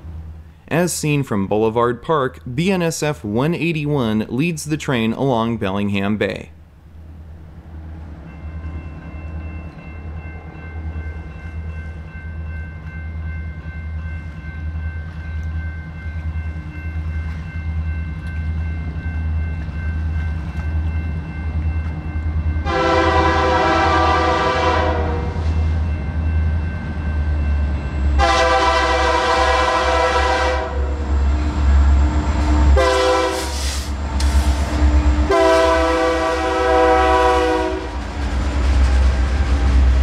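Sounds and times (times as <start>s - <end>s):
diesel locomotives droning: 6.6s - 40.0s
locomotive air horn blast: 22.6s - 25.5s, 28.2s - 31.0s, 32.7s - 38.0s.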